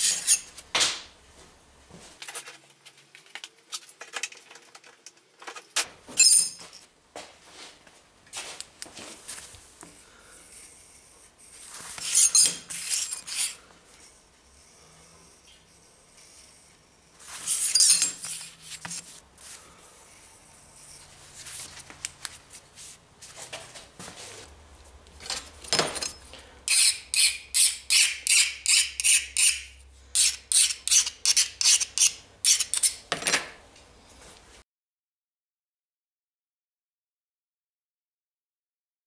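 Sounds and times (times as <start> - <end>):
file rubbing on steel blade: 0.0 - 0.5, 10.9 - 13.6, 14.7 - 19.2, 26.7 - 33.1
metal scrapes and clinks: 0.0 - 0.6, 5.6 - 6.9, 11.9 - 13.6, 17.3 - 18.9, 25.2 - 33.3.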